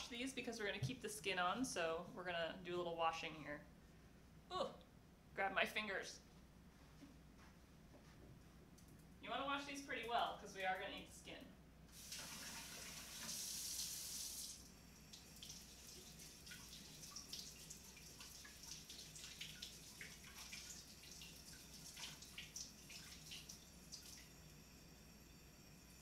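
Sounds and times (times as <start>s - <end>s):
faucet running into sink: 11.9s - 24.8s.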